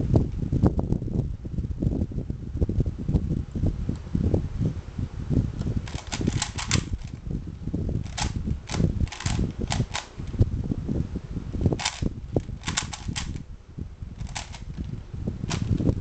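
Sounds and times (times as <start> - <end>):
puzzle cube clacking: 5.8 - 7.2, 8.0 - 10.4, 11.8 - 13.4, 14.2 - 15.9.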